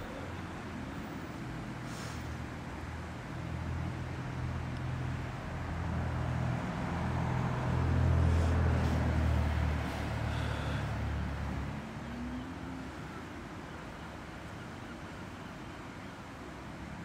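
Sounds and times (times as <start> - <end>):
outdoor background noise: 0.0 - 17.0
motor vehicle passing: 5.8 - 12.8.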